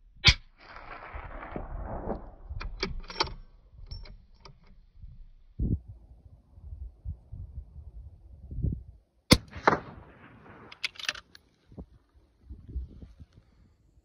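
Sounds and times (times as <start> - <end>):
rifle bolt metallic clicks: 2.6 - 4.8, 10.5 - 11.5
suppressed rifle shot echoing: 9.3 - 10.8.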